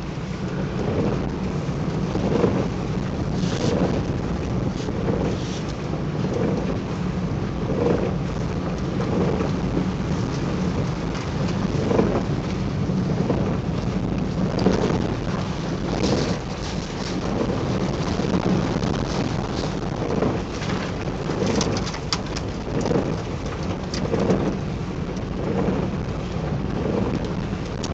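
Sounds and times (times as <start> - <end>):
car cabin road and engine rumble: 0.0 - 27.9
rain suit crinkling: 14.6 - 24.5.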